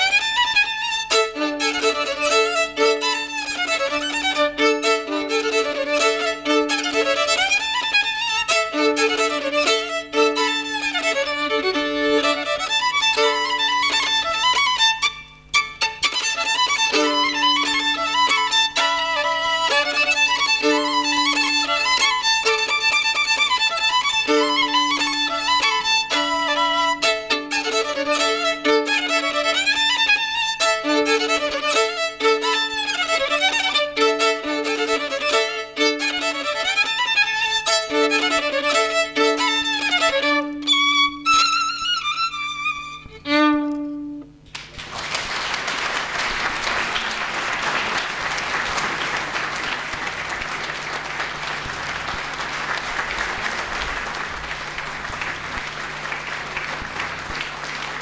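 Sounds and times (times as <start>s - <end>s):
solo violin playing lively tune: 0.0s - 58.0s
audience applauding: 15.1s - 16.1s, 42.8s - 43.2s, 44.2s - 58.0s.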